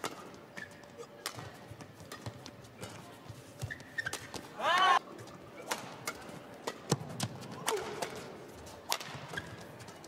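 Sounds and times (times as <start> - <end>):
shoe squeak: 0.5 - 1.1, 3.6 - 4.4, 9.3 - 9.7
rackets striking shuttlecock: 5.6 - 9.6.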